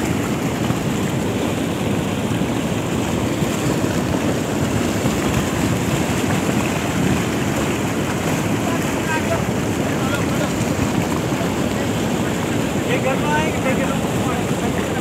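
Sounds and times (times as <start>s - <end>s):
mudflow rushing over rocks: 0.0s - 15.0s.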